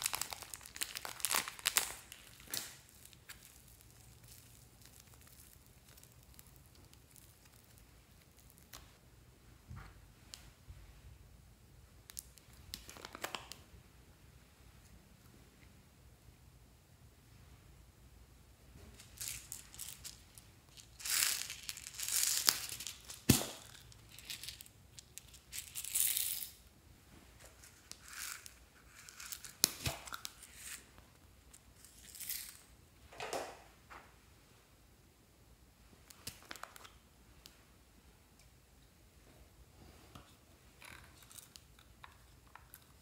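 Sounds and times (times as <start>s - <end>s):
plastic crinkling and rustling: 0.0s - 9.0s, 18.9s - 26.2s.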